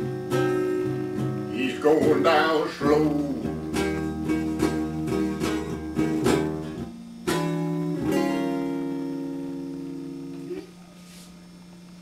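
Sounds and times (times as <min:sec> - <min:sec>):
electric guitar blues notes: 0:00.0 - 0:10.8
guitar chords ringing: 0:00.0 - 0:10.9.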